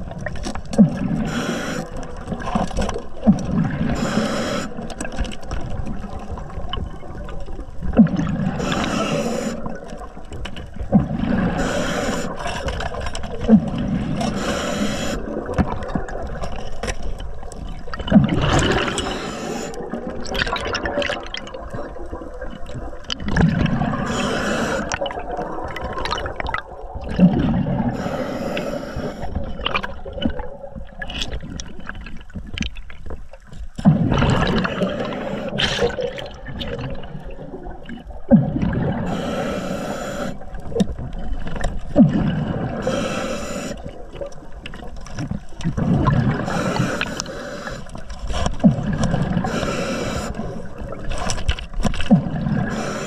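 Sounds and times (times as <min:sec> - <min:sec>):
water gurgling and sloshing: 0:00.0 - 0:53.0
diver breathing: 0:00.9 - 0:02.3, 0:03.8 - 0:05.1, 0:08.5 - 0:10.0, 0:11.1 - 0:13.0, 0:13.9 - 0:15.6, 0:18.6 - 0:20.1, 0:23.9 - 0:25.4, 0:27.9 - 0:29.9, 0:34.5 - 0:36.0, 0:38.9 - 0:40.7, 0:42.0 - 0:44.2, 0:46.2 - 0:51.2, 0:52.1 - 0:53.0.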